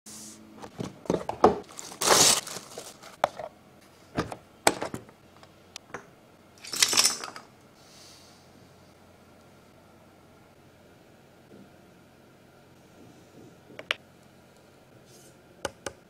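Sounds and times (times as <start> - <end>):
rustling scrapes of plastic: 1.6 - 3.3.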